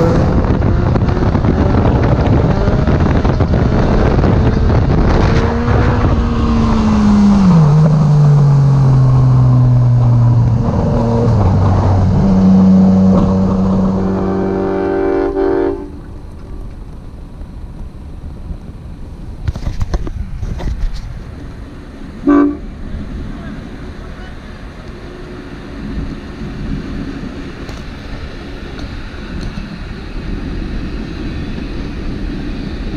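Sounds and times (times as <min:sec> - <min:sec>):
motorcycle engine slowing: 0:00.0 - 0:14.9
wind and road noise: 0:00.0 - 0:32.9.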